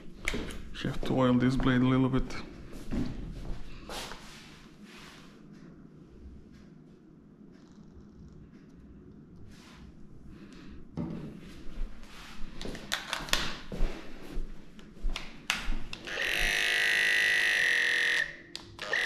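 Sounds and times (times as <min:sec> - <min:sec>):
electric clipper humming: 0:15.9 - 0:19.0.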